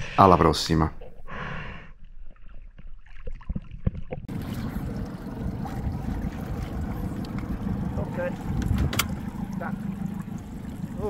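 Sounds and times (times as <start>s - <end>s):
muffled water sloshing: 3.0s - 11.0s
water rushing around boat: 4.3s - 11.0s
wind on microphone: 4.3s - 11.0s.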